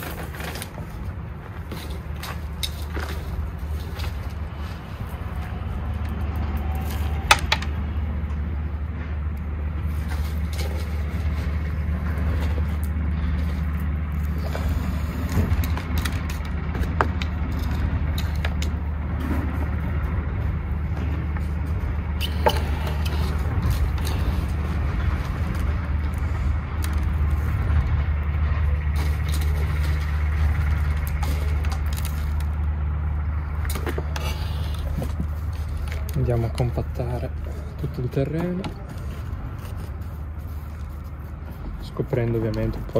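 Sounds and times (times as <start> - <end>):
low motor hum: 0.0 - 42.9.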